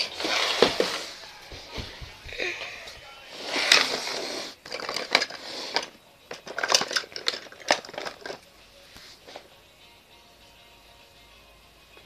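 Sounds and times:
toy blocks clicking and rustling: 3.4s - 8.5s.

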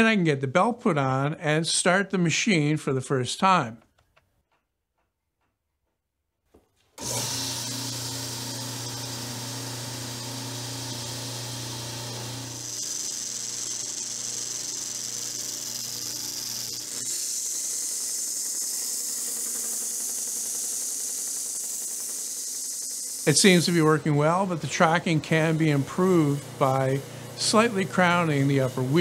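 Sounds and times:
belt sander motor humming: 7.0s - 29.0s
wood being sanded: 7.1s - 29.0s.

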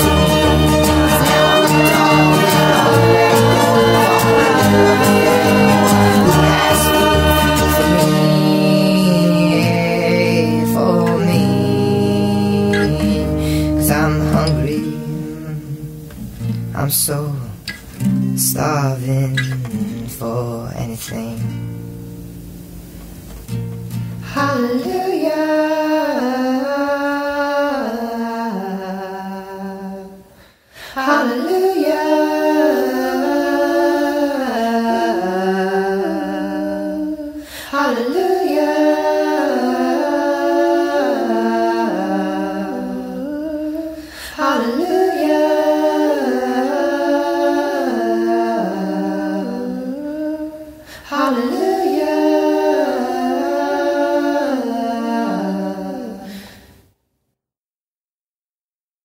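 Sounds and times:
a cappella singing: 0.0s - 16.2s, 18.4s - 21.6s, 24.2s - 56.8s
singer breathing: 13.3s - 13.8s, 30.3s - 31.0s, 37.4s - 37.8s, 43.9s - 44.4s, 50.8s - 51.1s, 56.3s - 56.9s.

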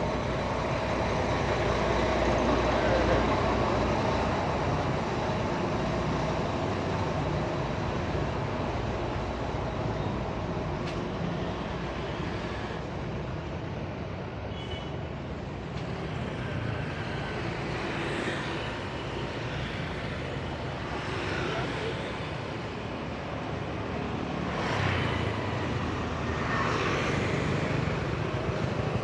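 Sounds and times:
bus engines rumbling: 0.0s - 29.0s
motorbikes and cars passing: 15.5s - 29.0s.

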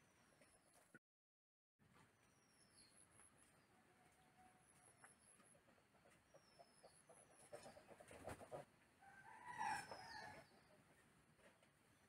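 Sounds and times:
small birds chirping: 2.1s - 3.8s, 4.7s - 8.4s
faint rooster crowing: 3.7s - 5.1s, 9.0s - 10.6s.

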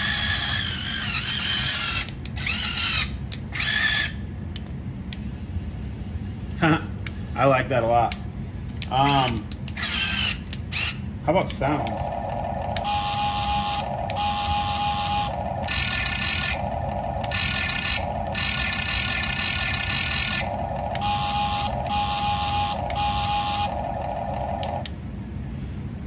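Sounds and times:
steady low rumble: 10.5s - 26.0s
electronic buzzing switching pitch: 11.9s - 25.0s.

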